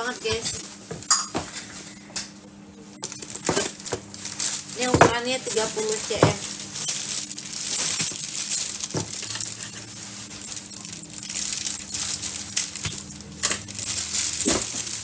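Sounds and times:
plastic wrapping crinkling: 0:00.0 - 0:02.0, 0:02.8 - 0:15.0.

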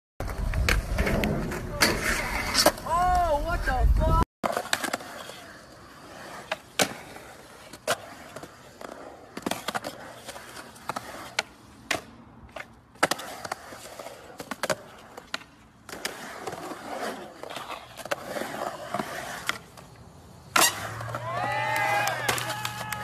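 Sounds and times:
skateboard wheels rolling on concrete: 0:00.2 - 0:23.0
skateboard clacking on coping: 0:20.6 - 0:23.0.

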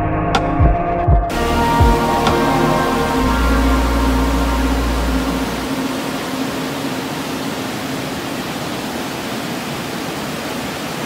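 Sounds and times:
background music: 0:00.0 - 0:08.0
waterfall rushing over rocks: 0:01.3 - 0:11.0.

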